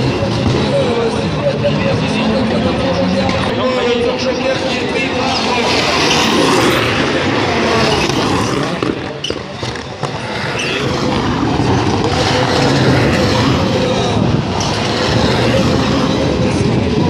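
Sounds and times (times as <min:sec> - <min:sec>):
racing car engines: 0:00.0 - 0:17.0.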